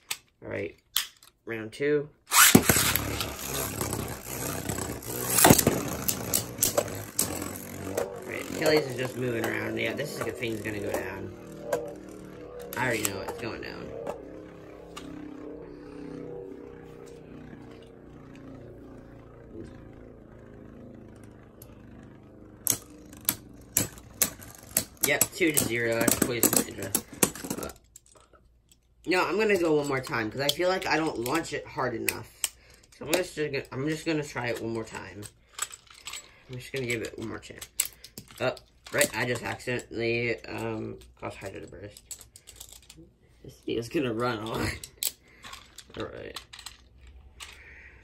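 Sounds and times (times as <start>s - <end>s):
string launcher pull: 2.3s - 18.2s
spinning tops whirring: 2.3s - 27.9s
spinning tops clacking together: 22.6s - 28.1s.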